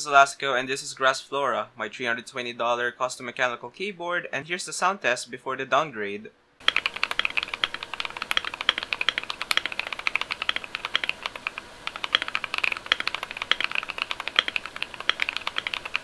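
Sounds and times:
fast mechanical keyboard typing: 6.6 - 16.0.

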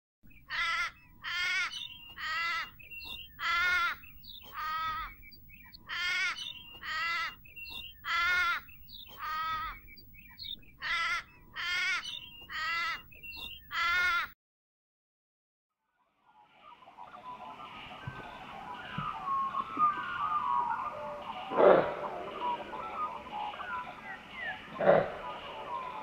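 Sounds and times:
bird giving harsh calls: 0.3 - 14.3, 17.3 - 26.0
faint low background noise: 16.0 - 26.0.

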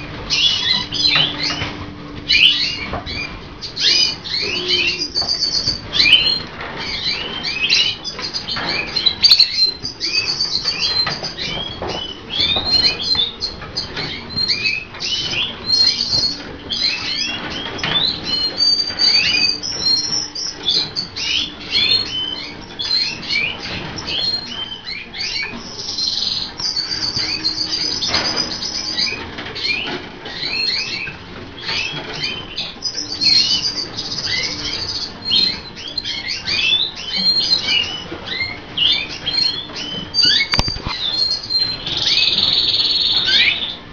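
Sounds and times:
birds chirping: 0.0 - 43.9.

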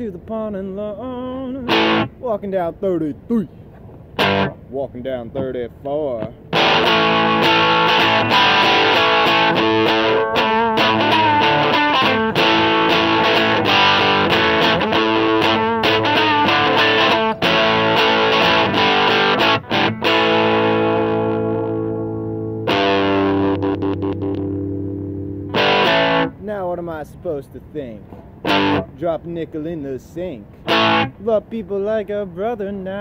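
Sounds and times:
distorted electric guitar riff: 1.5 - 2.2, 4.2 - 4.7, 6.2 - 26.5, 28.4 - 28.9, 30.5 - 31.2.

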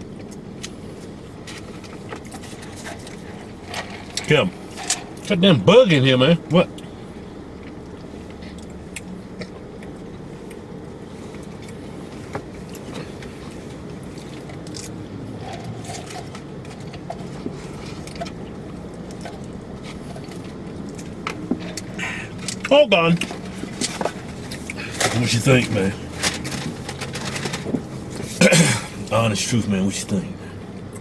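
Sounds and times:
quiet chewing: 0.0 - 5.3, 6.7 - 25.0
car cabin hum: 0.0 - 31.0.

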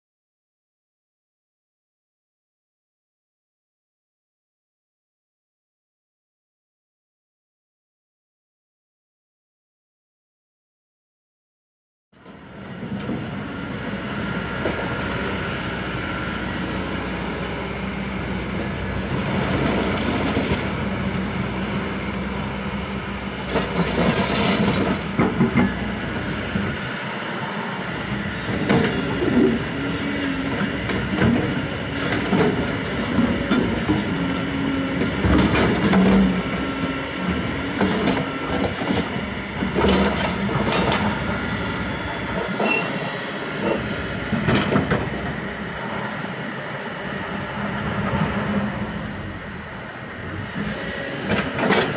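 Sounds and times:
excavator diesel engine running: 12.2 - 51.9
steel clanking and scraping on rocks: 23.4 - 25.8.

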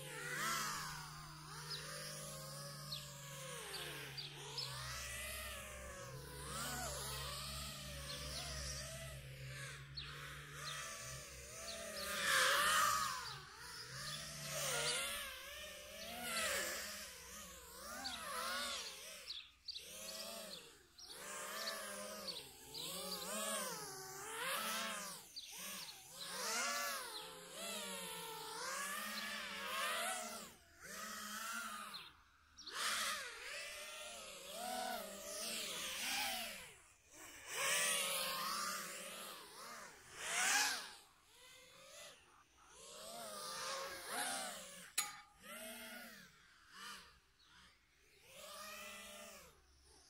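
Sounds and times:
drone motors whining: 0.0 - 50.0.

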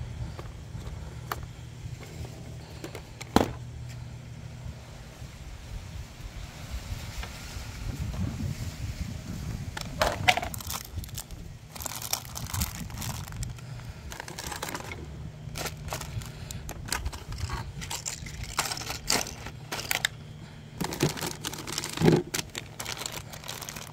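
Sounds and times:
plastic bags crinkling: 10.0 - 23.9.

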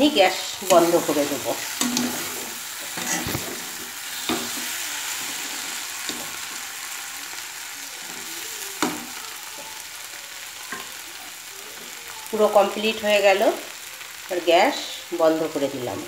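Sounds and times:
curry sizzling in a pan: 0.0 - 16.0
spatula stirring: 0.2 - 9.8.

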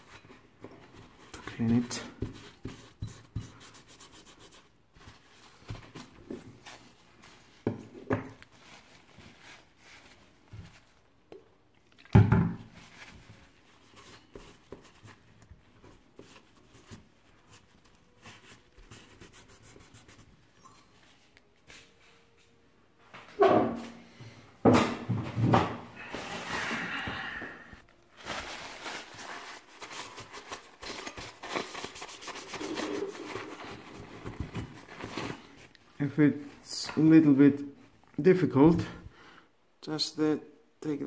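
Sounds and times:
tissue rubbing metal fins: 28.1 - 35.7.

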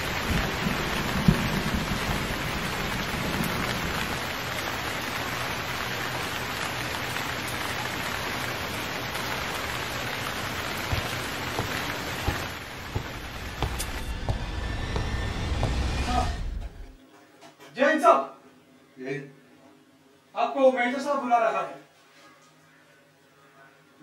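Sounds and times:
steady rain falling: 0.0 - 17.0.

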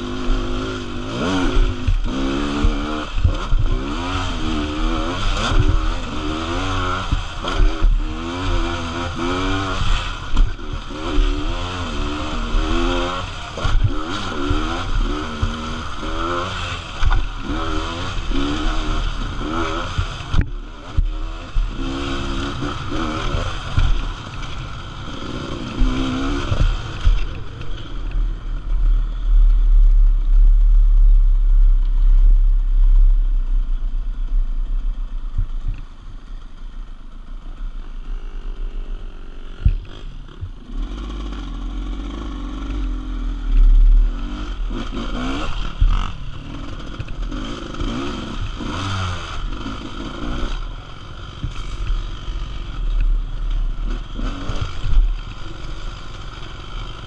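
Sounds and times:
two-stroke engine revving: 0.0 - 29.3, 36.5 - 57.0.

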